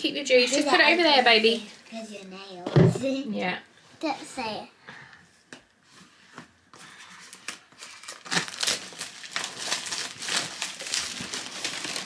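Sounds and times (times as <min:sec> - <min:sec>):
plastic wrapping crinkling and tearing: 0:07.2 - 0:12.0.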